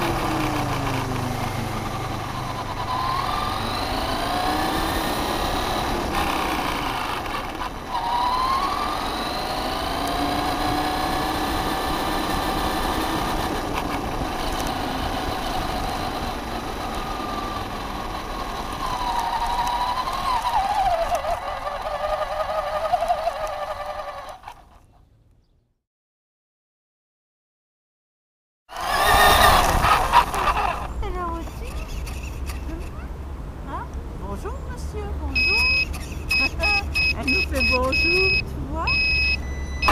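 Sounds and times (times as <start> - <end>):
electric motor whining: 0.0 - 24.8, 28.7 - 33.0, 35.4 - 39.9
low road rumble: 0.0 - 25.8, 28.7 - 39.9.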